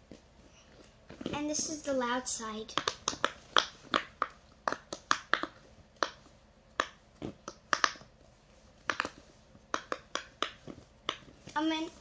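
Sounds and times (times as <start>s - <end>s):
fidget toy bubbles popping: 2.7s - 8.1s, 8.8s - 11.3s.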